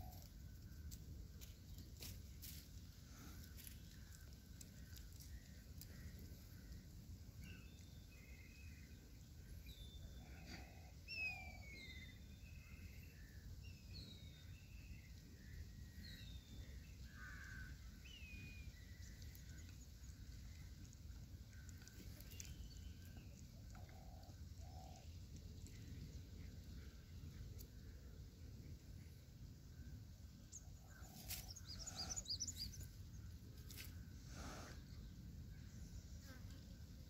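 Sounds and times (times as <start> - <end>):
bird chirps: 7.4 - 20.8, 30.5 - 32.9.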